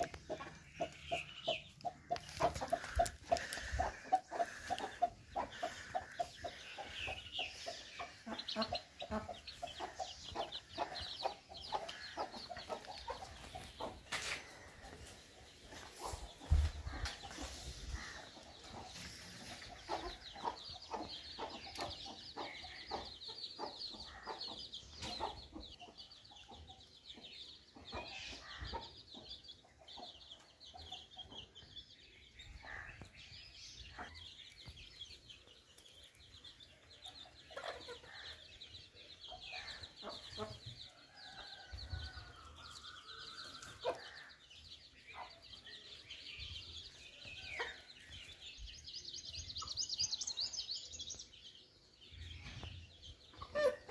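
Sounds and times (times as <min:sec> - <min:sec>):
hens clucking: 0:00.0 - 0:31.6, 0:53.3 - 0:53.9.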